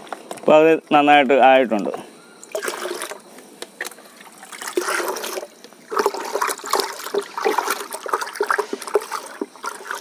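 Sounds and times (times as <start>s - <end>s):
liquid pouring into bucket: 2.4s - 3.2s, 3.8s - 10.0s
metal rod stirring water: 4.5s - 10.0s.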